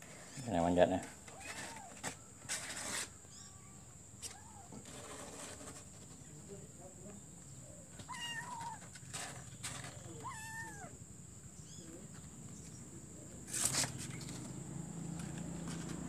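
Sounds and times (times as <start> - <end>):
kitten meowing: 8.0 - 8.9, 10.1 - 11.0.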